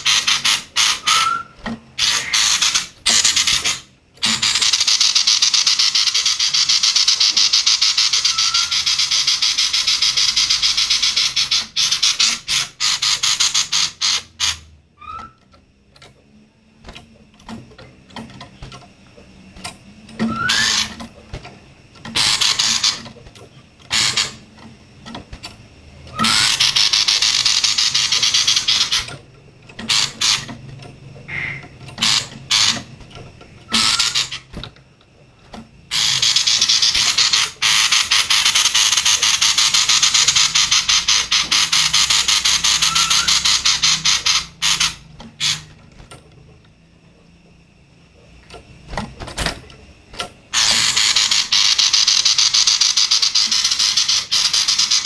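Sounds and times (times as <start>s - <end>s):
songbird harsh buzzing chatter: 0.0s - 15.4s, 20.2s - 21.0s, 22.1s - 23.2s, 23.9s - 24.6s, 26.1s - 30.6s, 31.2s - 33.0s, 33.7s - 34.6s, 35.9s - 45.8s, 50.5s - 55.0s.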